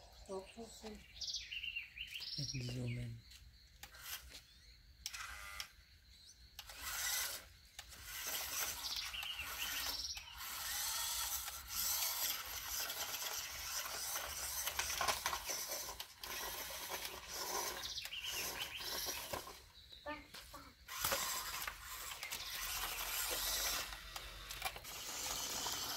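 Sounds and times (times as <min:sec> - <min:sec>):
toy electric motor whirring: 0:03.8 - 0:25.9.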